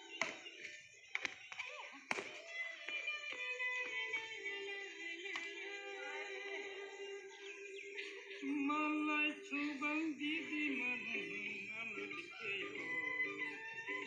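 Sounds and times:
racket hitting shuttlecock: 0:01.1 - 0:02.8
voices singing long notes: 0:01.5 - 0:14.0.

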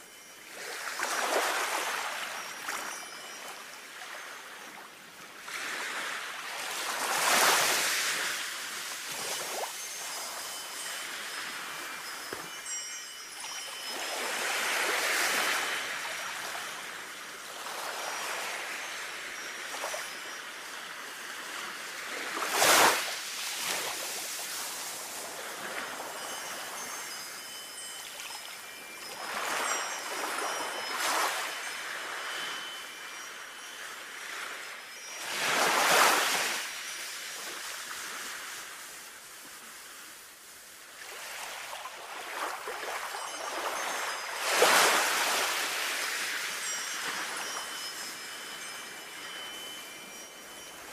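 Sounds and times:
faint wind chimes: 0:00.0 - 0:50.9.

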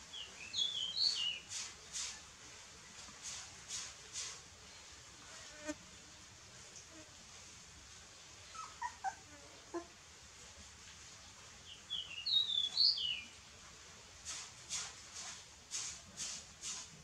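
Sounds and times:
puppies squeaking and whimpering: 0:08.6 - 0:09.2
puppies scrambling rustle: 0:14.2 - 0:17.0.

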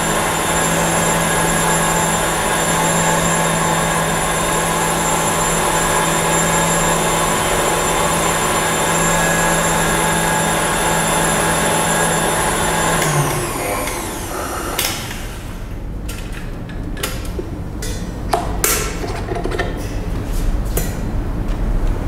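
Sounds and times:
stand mixer motor whine: 0:00.0 - 0:15.8.

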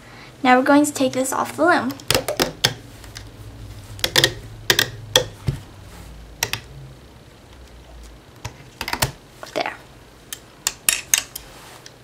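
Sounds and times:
sharp plastic clicks and taps: 0:01.9 - 0:03.3, 0:04.0 - 0:05.4.

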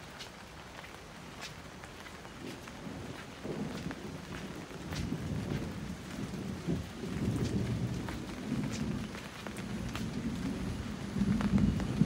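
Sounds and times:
light rain falling: 0:00.0 - 0:12.0.

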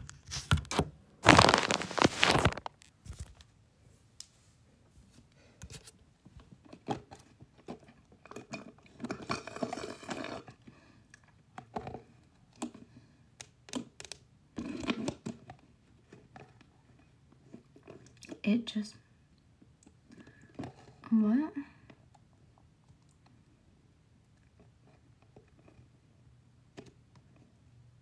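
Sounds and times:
plastic cup clicks and rustles: 0:00.0 - 0:03.5
slurping through a straw: 0:09.1 - 0:10.6.

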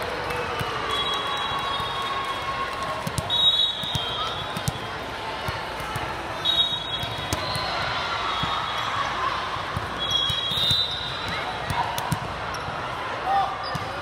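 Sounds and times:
volleyballs being hit and bounced: 0:02.6 - 0:08.8, 0:09.6 - 0:14.0
shrill referee whistle blasts: 0:03.2 - 0:04.6, 0:06.4 - 0:08.9, 0:10.0 - 0:11.3.

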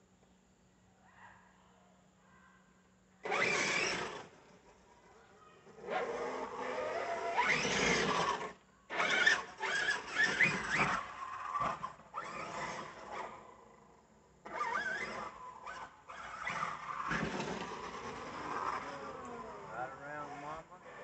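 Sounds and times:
electric motor whining: 0:03.2 - 0:04.8, 0:05.7 - 0:13.8, 0:14.4 - 0:21.0
tyres on dirt: 0:03.2 - 0:13.5, 0:14.4 - 0:21.0.

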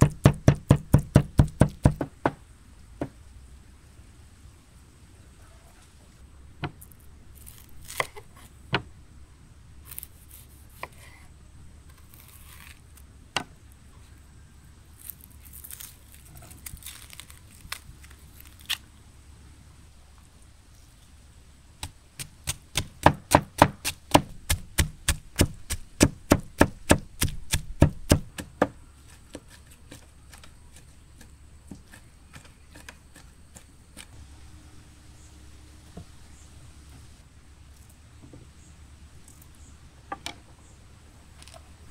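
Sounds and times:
knife chopping on wooden board: 0:00.0 - 0:02.4, 0:22.4 - 0:30.4
onion skin being peeled: 0:06.8 - 0:08.5, 0:09.8 - 0:11.2, 0:11.9 - 0:13.1, 0:14.8 - 0:19.0, 0:23.8 - 0:34.2.

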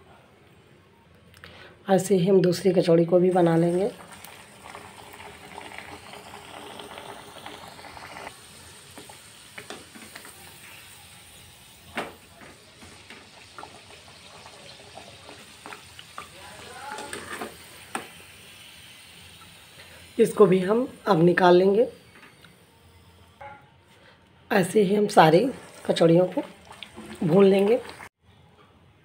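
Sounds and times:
food deep-frying in oil: 0:03.2 - 0:21.8, 0:25.1 - 0:28.2.

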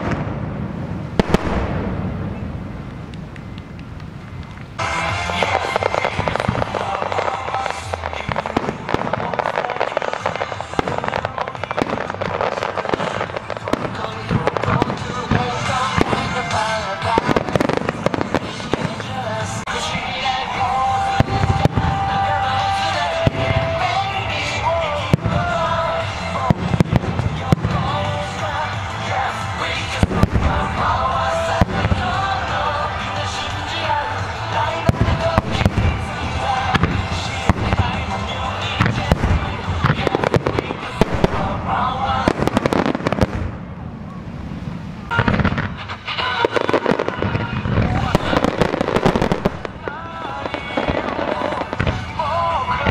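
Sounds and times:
low rumble: 0:00.0 - 0:07.0, 0:13.6 - 0:46.1
fireworks popping and banging: 0:00.0 - 0:52.9
melodic music: 0:04.0 - 0:43.3.

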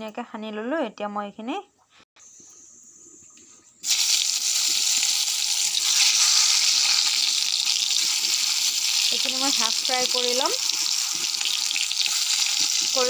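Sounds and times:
vegetable slices sizzling in hot oil: 0:03.8 - 0:13.0.

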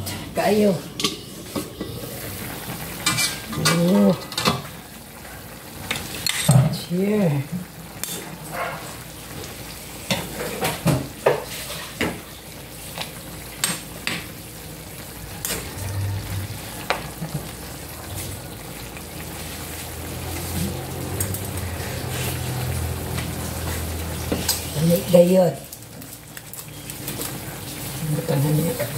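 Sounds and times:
food sizzling in a frying pan: 0:00.0 - 0:28.9
spoon scraping a pan: 0:03.0 - 0:04.6, 0:15.4 - 0:15.8.

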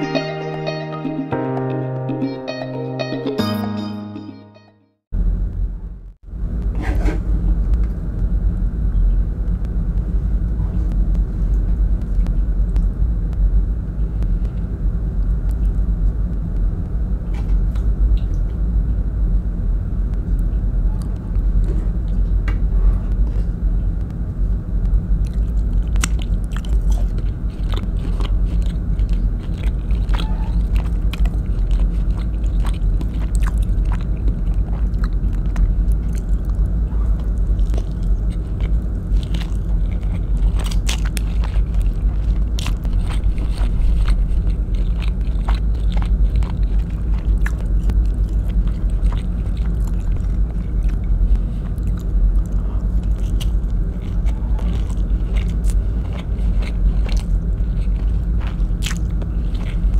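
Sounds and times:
steady low rumble: 0:05.2 - 0:59.9
eating by hand: 0:25.2 - 0:59.9.

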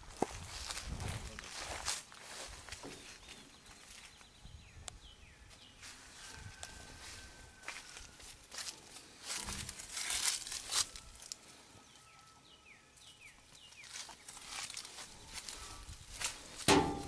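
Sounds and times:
rustling and crinkling handling: 0:00.0 - 0:04.3, 0:05.8 - 0:11.4, 0:13.5 - 0:17.0.

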